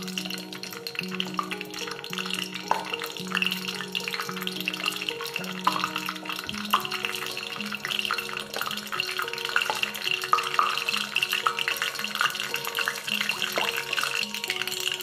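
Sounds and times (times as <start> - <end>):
background music with held notes: 0.0 - 15.0
seeds popping in hot oil: 0.0 - 15.0.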